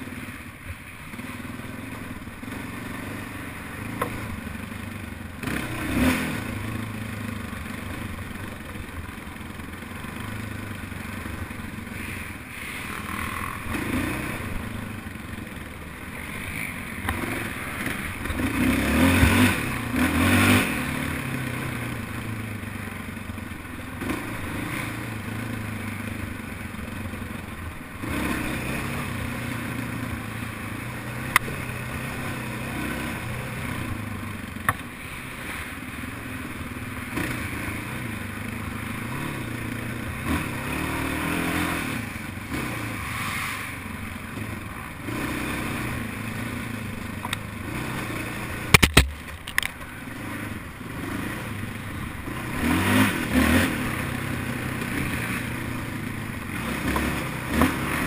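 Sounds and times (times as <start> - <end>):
quad engine revving: 1.2 - 8.7, 13.0 - 15.1, 16.2 - 22.8, 23.8 - 27.4, 28.0 - 34.4, 37.0 - 58.0
sharp click: 48.7 - 49.8.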